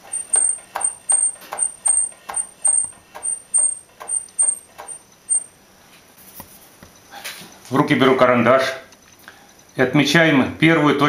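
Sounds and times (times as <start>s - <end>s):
blade ticking against wooden block: 0.0s - 5.5s.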